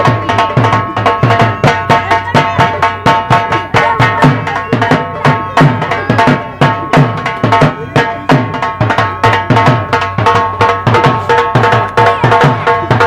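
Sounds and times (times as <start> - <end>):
hand drum fast beat: 0.0 - 13.0.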